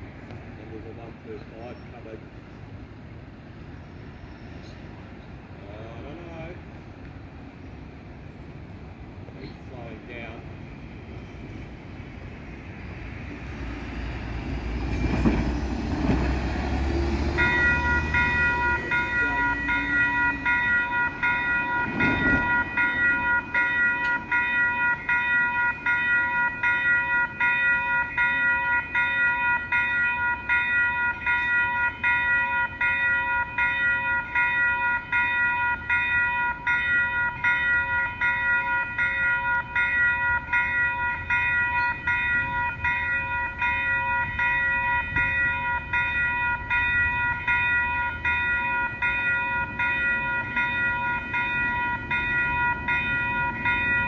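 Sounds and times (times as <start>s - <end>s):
level crossing warning bell: 16.0s - 54.0s.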